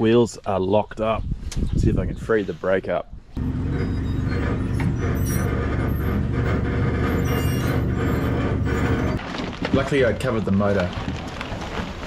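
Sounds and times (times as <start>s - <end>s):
vehicle engine running: 3.4s - 9.2s.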